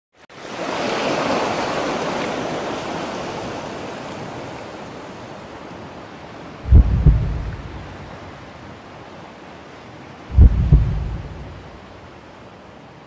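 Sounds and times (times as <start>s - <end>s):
ocean wave washing in: 6.6s - 8.5s, 10.3s - 12.2s
deep low thump: 6.7s - 8.0s, 10.3s - 11.7s.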